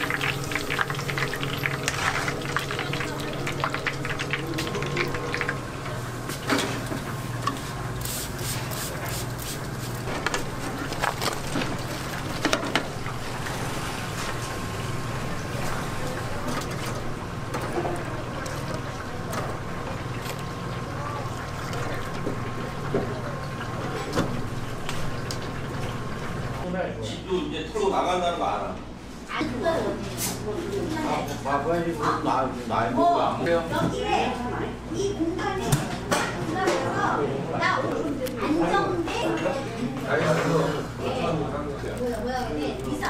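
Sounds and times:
oil bubbling in a deep fryer: 0:00.0 - 0:08.6, 0:10.1 - 0:26.6.

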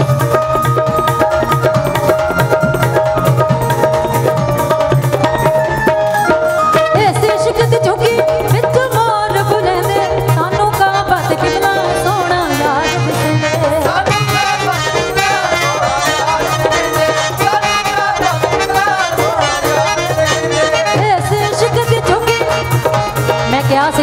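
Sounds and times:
keyboard held notes: 0:00.0 - 0:24.0
percussion beat: 0:00.0 - 0:24.0
women singing: 0:07.0 - 0:22.6.

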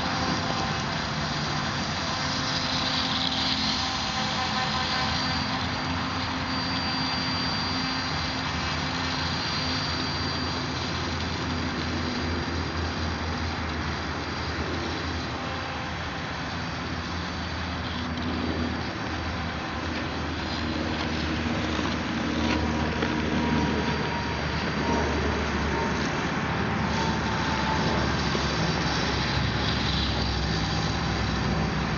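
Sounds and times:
propeller buzzing with high whine: 0:00.0 - 0:31.9
steady rushing noise: 0:00.0 - 0:31.9.

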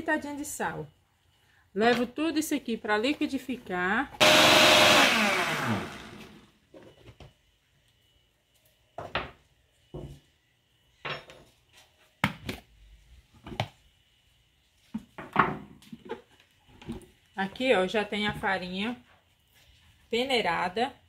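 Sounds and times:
blender motor spinning down: 0:04.2 - 0:06.5.

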